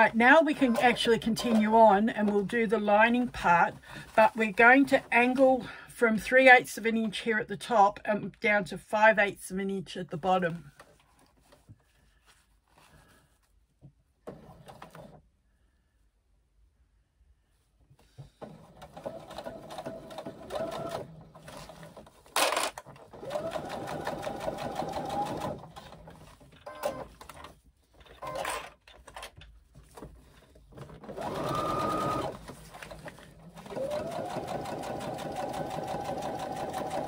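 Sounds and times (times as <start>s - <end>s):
sewing machine motor whining: 31.1s - 32.4s.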